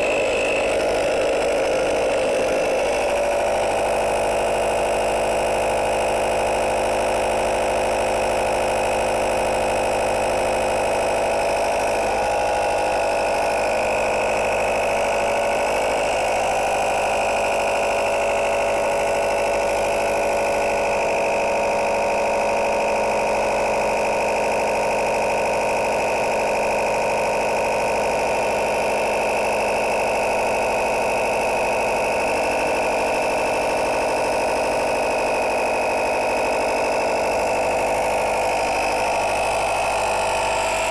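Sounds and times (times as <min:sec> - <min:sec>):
air compressor humming: 0:00.0 - 0:40.9.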